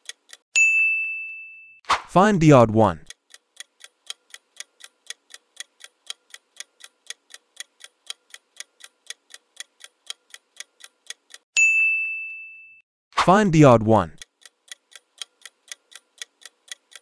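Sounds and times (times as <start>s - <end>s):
bright ding: 0.6s - 1.8s, 11.6s - 12.8s.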